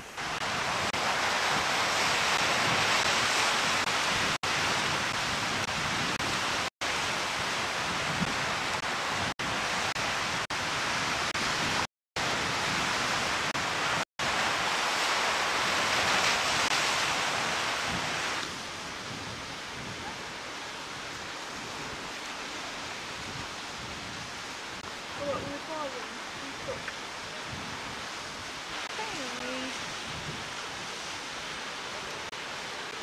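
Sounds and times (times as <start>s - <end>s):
surf breaking against rocks: 14.2s - 19.2s.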